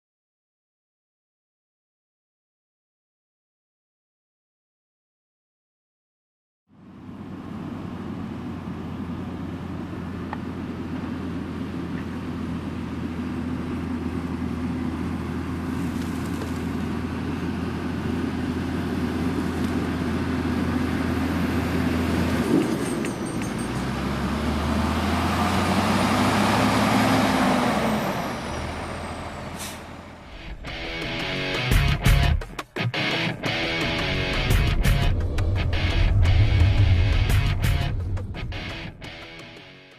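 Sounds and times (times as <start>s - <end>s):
tractor engine running: 30.2s - 39.8s.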